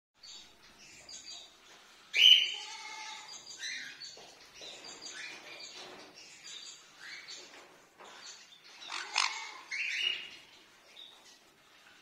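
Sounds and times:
parrots chirping and chattering: 0.2s - 12.0s
loud harsh parrot call: 8.9s - 10.2s.

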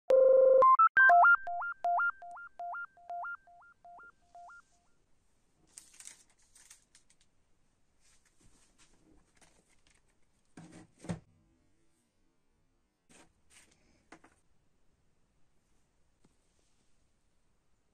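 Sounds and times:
synthesizer jingle: 0.1s - 4.6s
record sleeve rustling: 5.7s - 7.2s, 8.0s - 10.2s.

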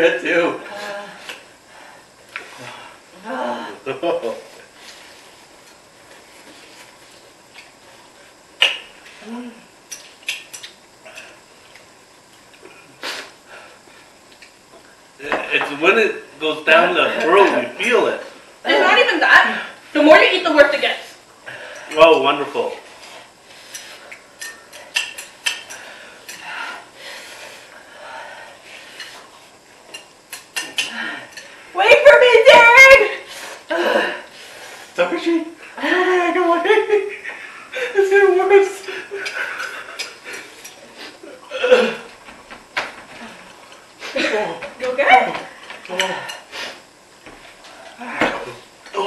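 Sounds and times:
person humming: 9.2s - 9.7s, 45.9s - 46.3s
chopsticks clicking against bowls: 9.9s - 11.9s, 23.7s - 26.4s, 29.9s - 31.5s.

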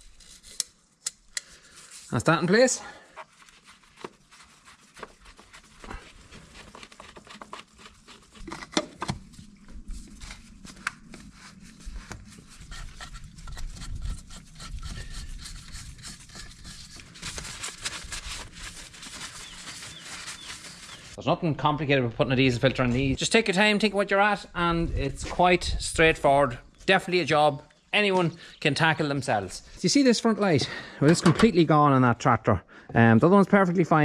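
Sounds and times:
paper towel wiping: 1.9s - 8.5s, 9.6s - 12.7s, 15.0s - 21.2s.

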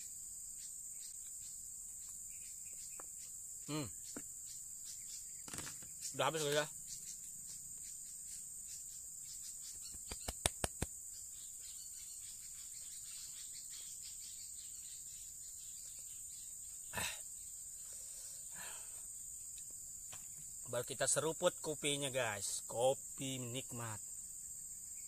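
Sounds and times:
insect chirring: 0.0s - 25.0s
sharp clicks: 9.9s - 10.9s.

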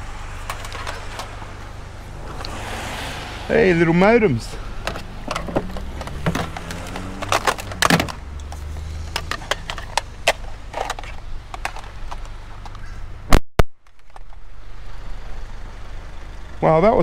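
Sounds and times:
low engine hum: 0.0s - 13.3s
electronics clattering in scrap pile: 0.4s - 1.4s, 4.8s - 12.7s.

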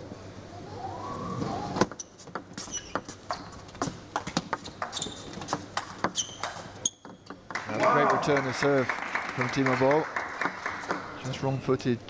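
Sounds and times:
shoes squeaking on floor: 1.4s - 7.4s.

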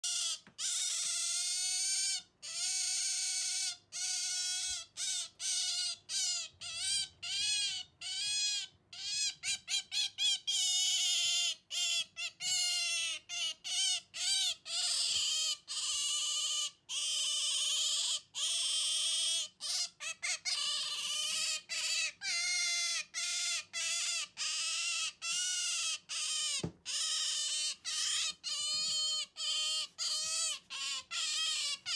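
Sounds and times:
otter squealing: 12.6s - 31.9s.

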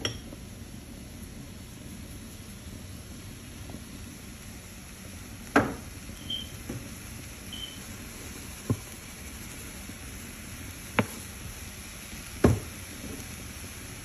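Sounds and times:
seasoning shakers knocking: 5.4s - 7.8s, 10.9s - 11.4s, 12.4s - 13.3s.

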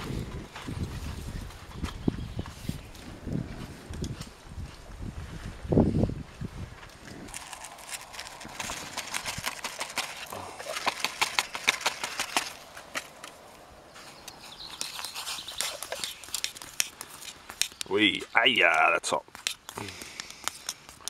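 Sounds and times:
paper sachet crinkling: 7.3s - 13.3s, 14.5s - 17.8s.

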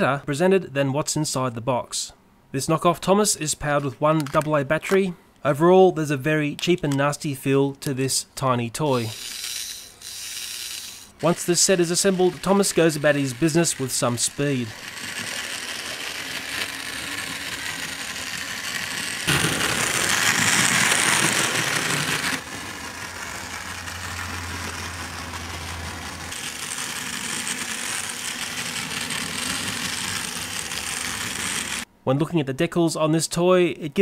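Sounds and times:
plastic wheels rattling on track: 8.9s - 31.9s
toy train motor whirring: 8.9s - 31.9s.

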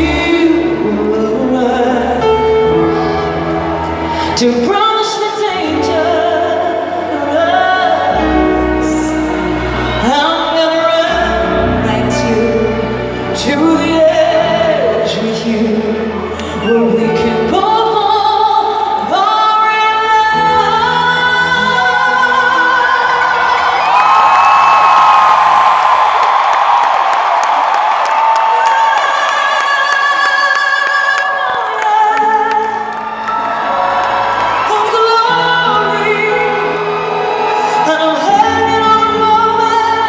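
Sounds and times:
woman singing pop ballad live: 0.0s - 25.9s, 27.6s - 40.0s.

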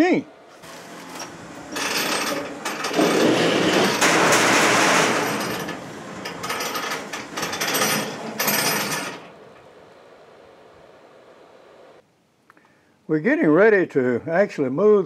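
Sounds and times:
metal clanking and scraping: 0.6s - 9.8s.

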